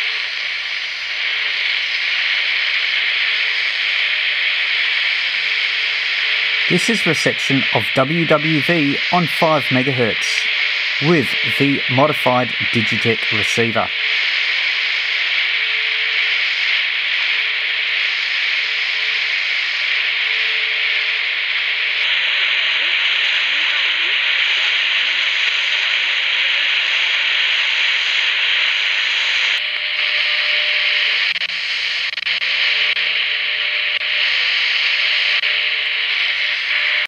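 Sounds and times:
radio static hiss: 0.0s - 37.0s
higher radio tone: 6.7s - 14.0s.

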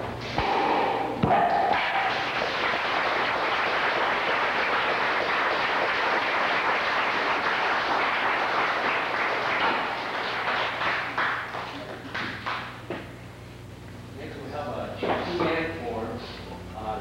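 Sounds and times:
audience applauding: 1.7s - 12.8s.

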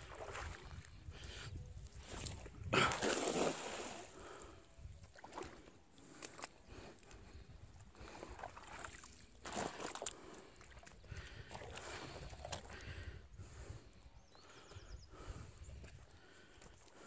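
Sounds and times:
splash on water: 2.9s - 4.0s.

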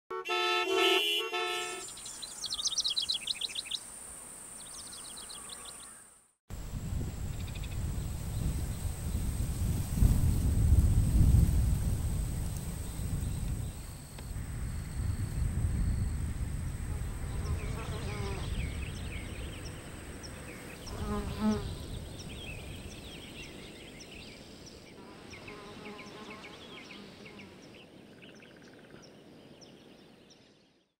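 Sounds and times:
songbird chirping: 0.3s - 6.4s, 12.4s - 30.9s
insects buzzing: 0.3s - 28.1s
wind rumble on microphone: 6.5s - 24.7s.

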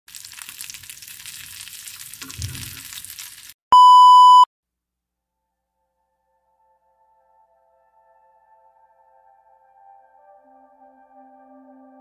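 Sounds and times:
frying sizzle: 0.1s - 3.6s
electronic test tone beep: 3.7s - 4.5s.

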